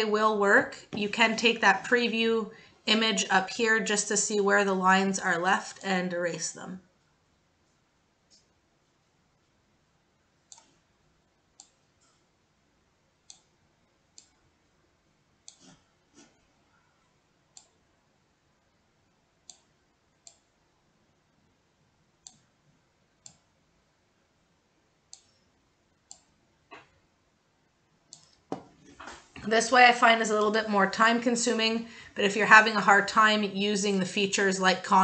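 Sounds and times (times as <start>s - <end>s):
computer mouse clicking: 10.5s - 10.8s, 11.6s - 12.2s, 13.2s - 13.5s, 14.1s - 14.4s, 15.4s - 15.8s, 17.5s - 17.8s, 19.4s - 20.5s, 22.2s - 22.5s, 23.2s - 23.5s, 25.1s - 25.4s, 26.0s - 26.9s, 28.1s - 28.4s.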